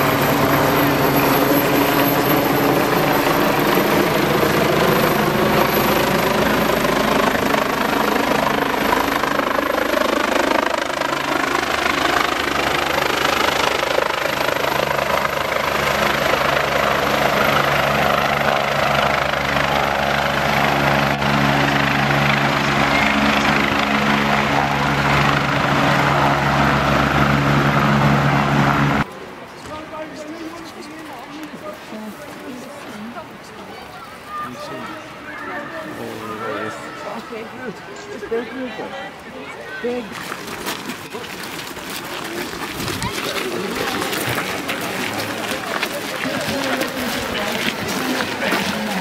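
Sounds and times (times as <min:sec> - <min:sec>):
helicopter flying overhead: 0:00.0 - 0:49.0.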